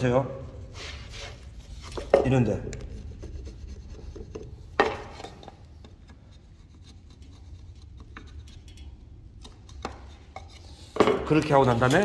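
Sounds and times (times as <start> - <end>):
chisel scraping wood: 2.8 - 8.7, 9.4 - 12.0.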